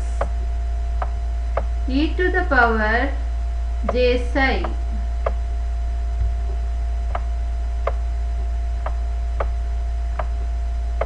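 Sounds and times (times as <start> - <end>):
low electrical mains hum: 0.0 - 11.0
stylus tapping on tablet: 4.6 - 5.4, 6.2 - 8.0, 8.8 - 9.6, 10.2 - 10.4.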